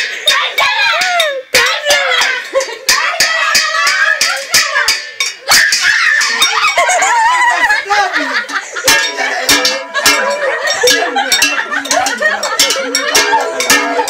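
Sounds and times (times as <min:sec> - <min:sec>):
women singing and shouting: 0:00.0 - 0:14.0
metal pot lid clanging: 0:08.4 - 0:14.0.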